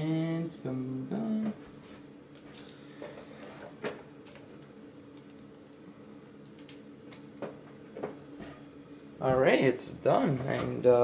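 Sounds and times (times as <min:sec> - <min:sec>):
computer humming: 0:00.0 - 0:11.0.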